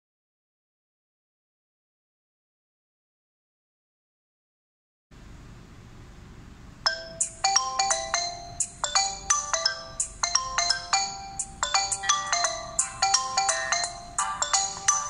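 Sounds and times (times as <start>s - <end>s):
smartphone ringtone melody: 6.9s - 15.0s.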